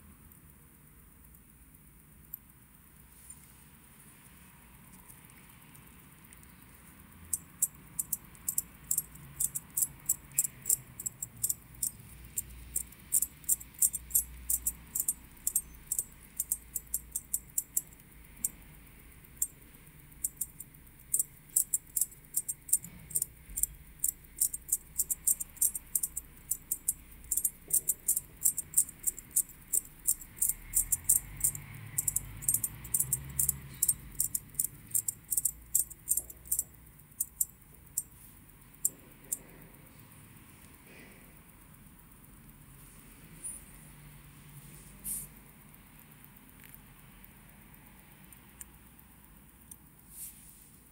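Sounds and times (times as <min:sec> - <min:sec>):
watch winding ratchet clicks: 0:07.3 - 0:39.5.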